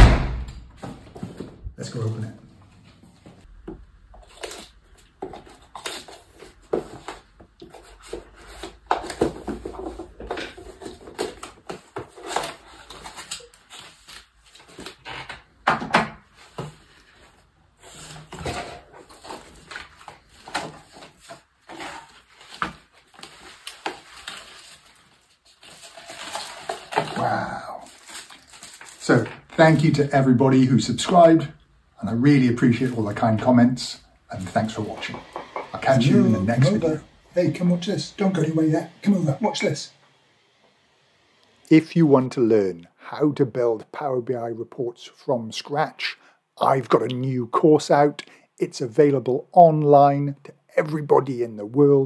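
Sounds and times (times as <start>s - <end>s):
paper inserts rustling: 16.3s - 31.5s.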